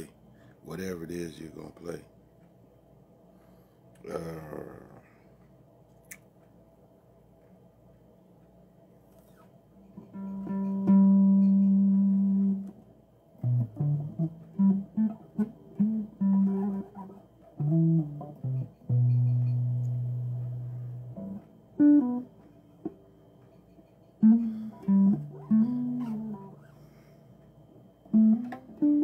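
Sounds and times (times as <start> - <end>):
bass guitar: 10.0 - 12.8, 13.4 - 23.0, 24.2 - 26.6, 28.1 - 29.0.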